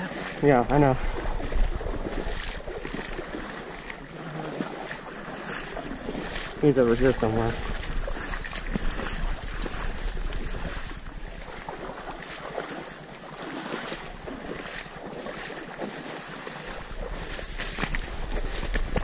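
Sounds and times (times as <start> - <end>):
splashing in shallow water: 0.0 - 19.0
wind rumble on microphone: 0.4 - 3.6, 5.6 - 12.3, 16.6 - 19.0.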